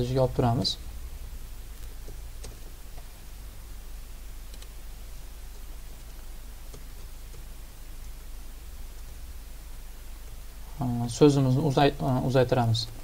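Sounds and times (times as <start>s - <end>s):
steady low hum: 0.0s - 13.0s
keyboard and mouse clicks: 2.0s - 3.1s, 4.5s - 4.7s.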